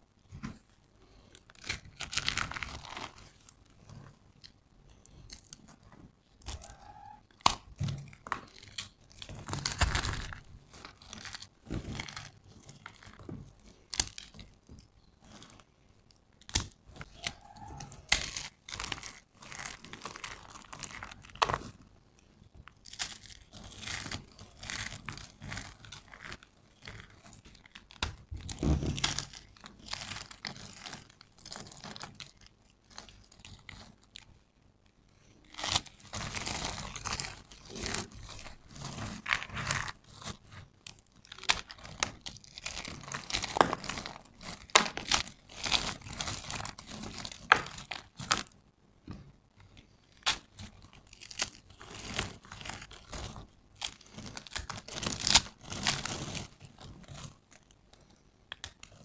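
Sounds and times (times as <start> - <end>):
soap chips rustling: 35.2 - 48.5.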